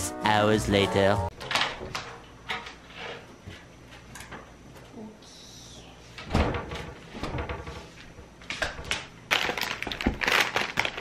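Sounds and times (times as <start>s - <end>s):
cabinet door shutting with thud: 6.3s - 7.7s.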